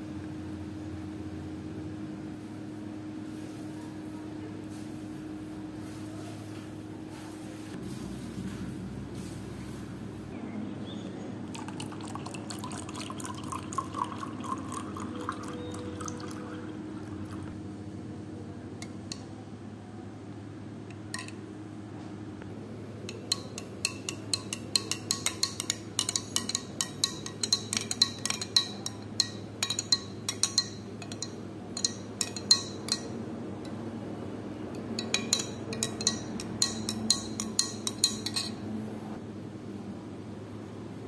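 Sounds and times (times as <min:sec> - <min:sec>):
spoon clinking against glass: 0:23.1 - 0:33.2, 0:35.0 - 0:38.6.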